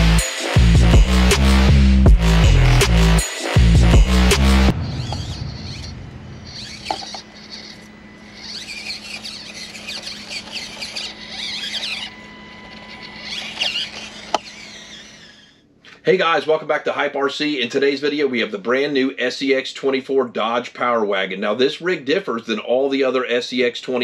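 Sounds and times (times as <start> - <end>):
small electric motor hum: 2.2 - 15.6
high-pitched squeals: 4.3 - 15.6.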